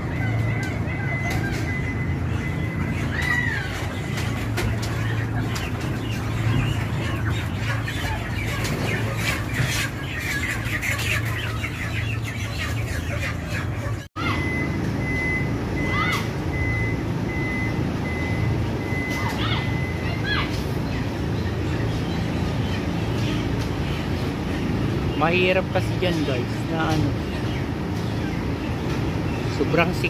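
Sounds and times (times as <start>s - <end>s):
chickens squawking and chirping: 0.0s - 30.0s
truck reversing beeper: 0.3s - 3.2s, 14.2s - 20.2s.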